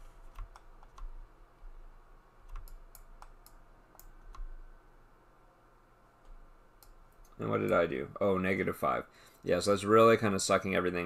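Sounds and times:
faint low hum: 0:00.0 - 0:11.0
keyboard and mouse clicks: 0:00.2 - 0:01.2, 0:02.4 - 0:04.6.

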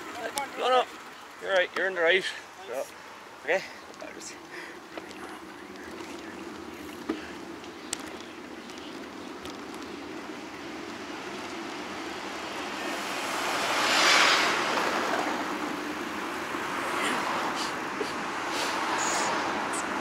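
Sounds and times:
motor vehicle passing: 0:00.0 - 0:20.0
road hum: 0:00.0 - 0:20.0.

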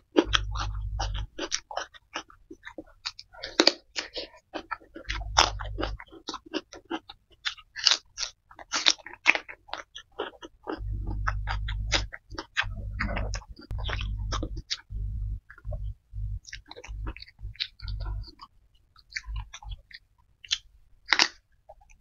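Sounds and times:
chewing and crunching: 0:00.0 - 0:22.0
low hum: 0:00.2 - 0:01.4, 0:05.1 - 0:06.0, 0:10.7 - 0:18.4
mouth clicks: 0:05.0 - 0:06.1, 0:10.7 - 0:22.0.

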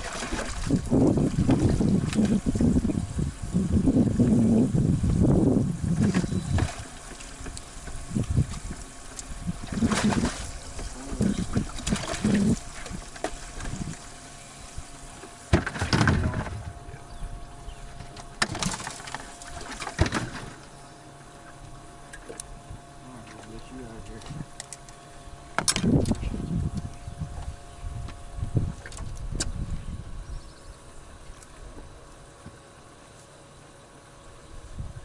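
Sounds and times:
faint steady hum: 0:00.0 - 0:35.0
water lapping against boat hull: 0:00.0 - 0:35.0.

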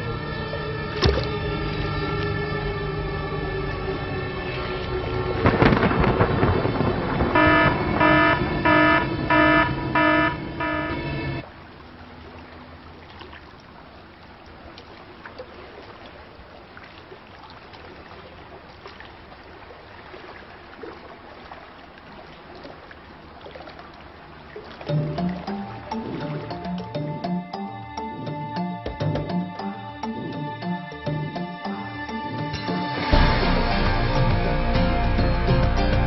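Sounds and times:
surf noise: 0:00.0 - 0:12.8
buzzy horn-like pulsing tone: 0:06.7 - 0:11.4.

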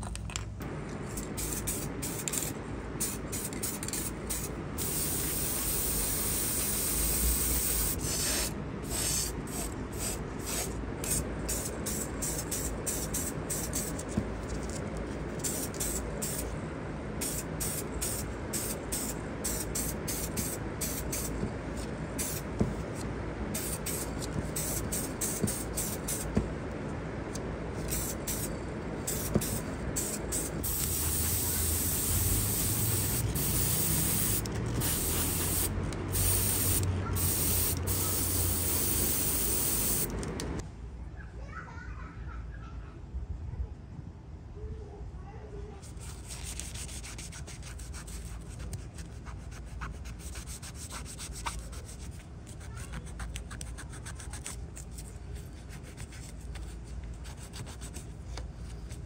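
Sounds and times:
steady low hum: 0:00.0 - 0:40.6
spray paint hissing: 0:01.1 - 0:14.8, 0:15.4 - 0:16.5, 0:17.2 - 0:21.4, 0:22.2 - 0:22.8, 0:23.5 - 0:26.4, 0:27.8 - 0:40.6.

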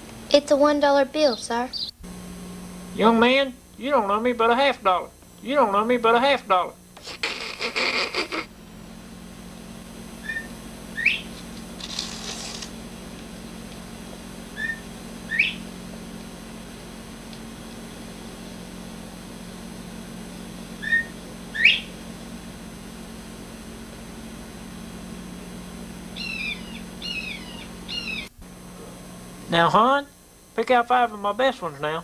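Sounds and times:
steady low hum: 0:00.0 - 0:32.0
bird two-note whistled call: 0:10.2 - 0:11.3, 0:14.6 - 0:15.6, 0:20.8 - 0:21.9.

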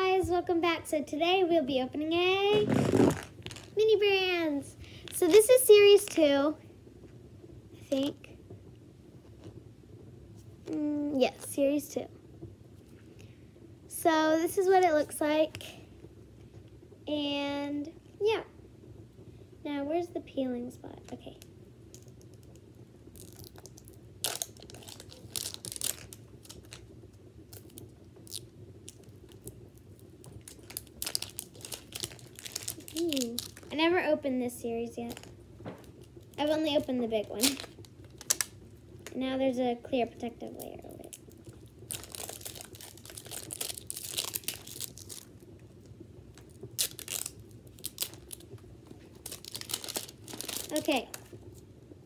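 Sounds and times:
plastic wrapper crinkling: 0:02.2 - 0:04.0, 0:04.8 - 0:06.2, 0:21.9 - 0:26.9, 0:27.5 - 0:34.0, 0:34.9 - 0:39.2, 0:40.4 - 0:51.7.

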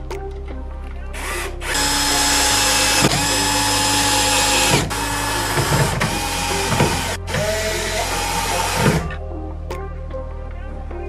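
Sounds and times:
cordless drill driving screws: 0:01.6 - 0:09.1.

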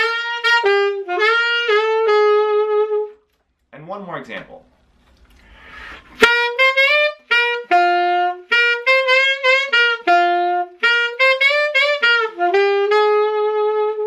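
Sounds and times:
saxophone playing blues: 0:00.0 - 0:03.4, 0:05.4 - 0:14.0
player breathing: 0:05.3 - 0:06.2.

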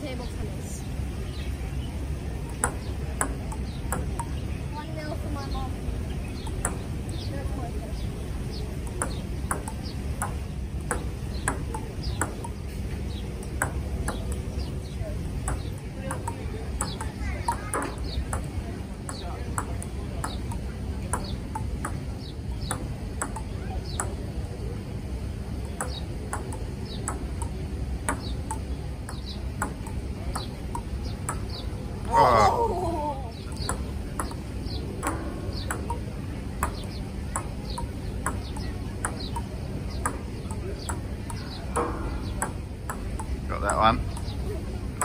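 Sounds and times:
table tennis ball clicks: 0:02.5 - 0:04.4, 0:08.8 - 0:12.6, 0:13.4 - 0:14.7, 0:15.4 - 0:18.5, 0:19.1 - 0:24.2, 0:25.7 - 0:31.6, 0:33.5 - 0:34.4, 0:35.0 - 0:44.4.

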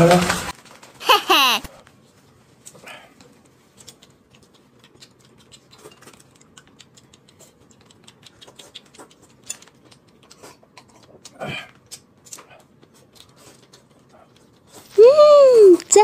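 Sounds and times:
slurping and chewing noodles: 0:02.6 - 0:15.0
chopsticks clicking on porcelain bowls: 0:05.8 - 0:11.0.

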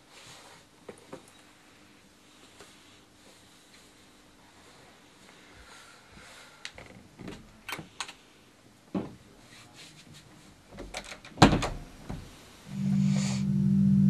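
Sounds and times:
door shutting with a knock: 0:10.8 - 0:12.3.

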